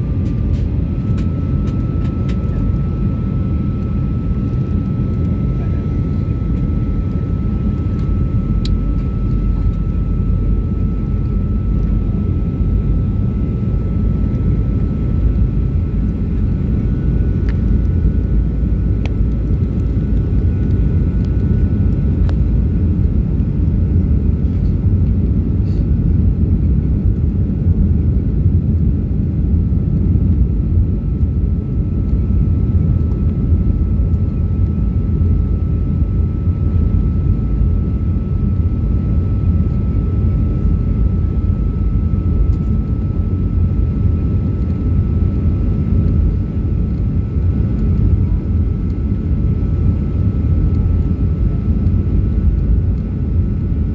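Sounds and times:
faint high whine: 0.0s - 24.6s
airliner engines rumbling: 0.0s - 53.9s.

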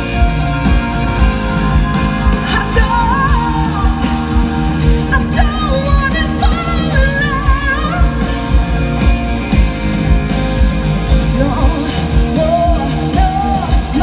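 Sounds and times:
electric guitar: 0.0s - 14.0s
steady drum beat: 0.0s - 14.0s
woman singing: 2.0s - 9.0s, 11.1s - 14.0s.

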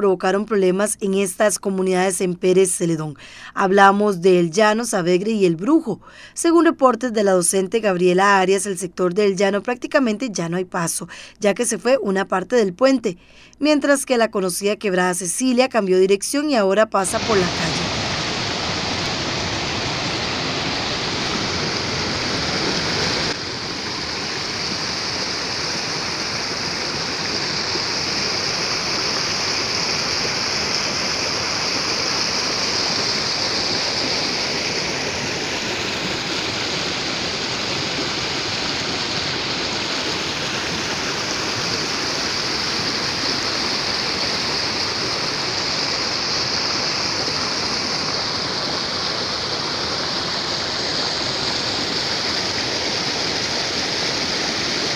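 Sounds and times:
water rushing over rocks: 17.1s - 54.9s.

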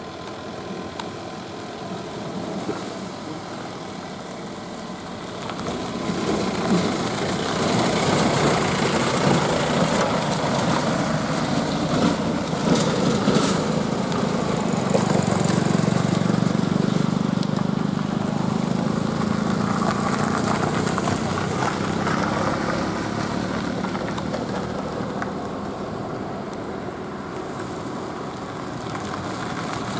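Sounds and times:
truck engine pulling away: 1.6s - 26.6s.

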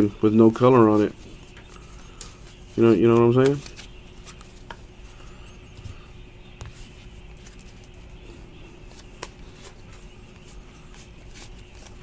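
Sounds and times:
steady low hum: 0.0s - 12.0s
cards clicking and sliding: 3.0s - 4.8s.

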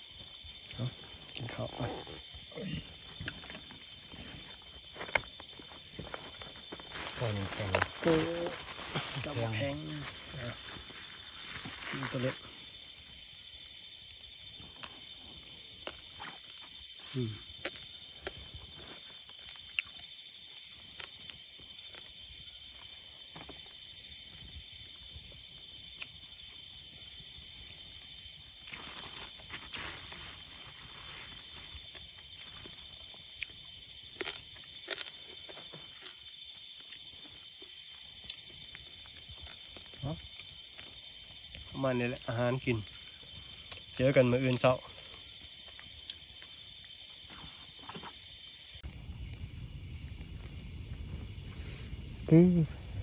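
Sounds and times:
crickets chirping drone: 0.0s - 53.0s
insect trilling: 0.0s - 53.0s.

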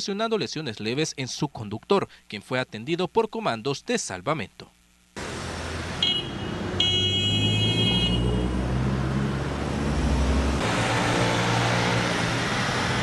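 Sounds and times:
vehicle engines humming: 5.2s - 13.0s
vehicle passing: 5.2s - 13.0s.

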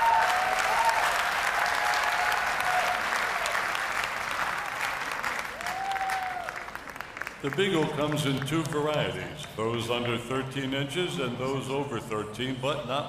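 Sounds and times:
drawn-out cheers: 0.0s - 3.7s, 5.5s - 6.8s
audience applauding: 0.0s - 9.2s.

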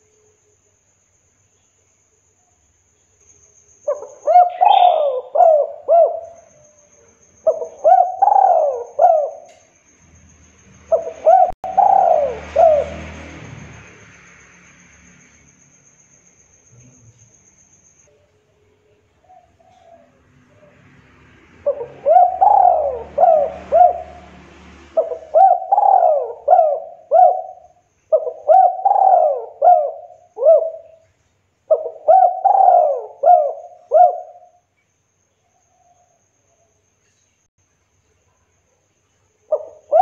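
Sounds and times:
dove cooing: 3.9s - 6.5s, 7.4s - 9.6s, 10.9s - 13.3s, 19.2s - 20.8s, 21.6s - 24.3s, 24.9s - 31.0s, 31.7s - 34.6s, 39.5s - 40.0s.

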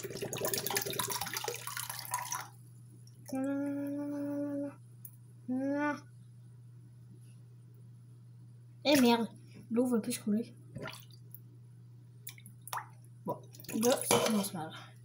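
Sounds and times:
water splashing into sink: 0.0s - 2.5s, 10.8s - 11.2s, 12.3s - 14.5s
person humming: 3.3s - 4.8s, 5.5s - 6.0s.

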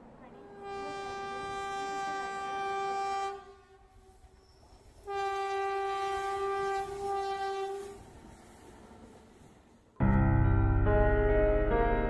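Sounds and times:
train horn blasts: 0.2s - 8.1s.

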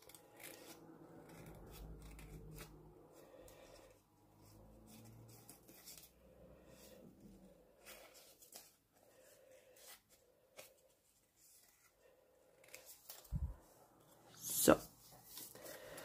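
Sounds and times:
scissors snipping paper: 0.0s - 3.0s.

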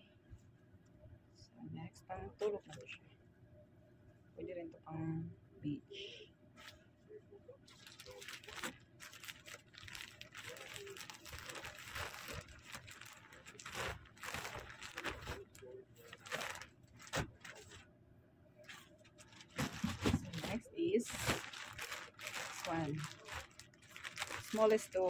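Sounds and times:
plastic bag crinkling: 7.7s - 17.8s, 18.7s - 25.0s.

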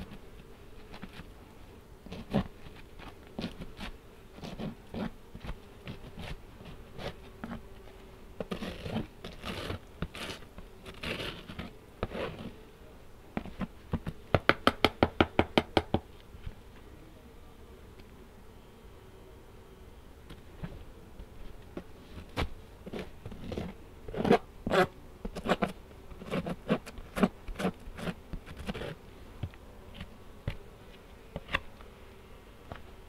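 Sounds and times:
honey bees humming: 0.0s - 33.0s
hive frames knocking and scraping: 13.3s - 16.9s, 20.2s - 24.5s, 25.2s - 32.0s.

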